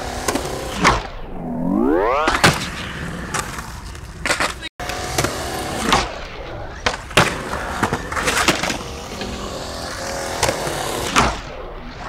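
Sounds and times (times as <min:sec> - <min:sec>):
skateboard wheels rolling on concrete: 0:00.0 - 0:01.1, 0:01.7 - 0:12.0.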